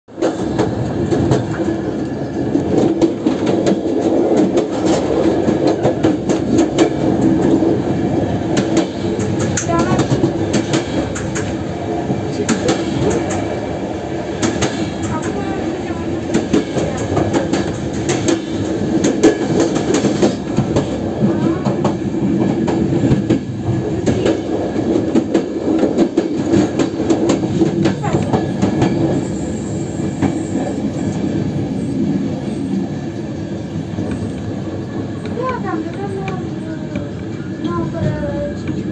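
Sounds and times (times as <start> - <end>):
train wheels clattering over rail joints: 0.1 - 13.6, 14.3 - 30.9.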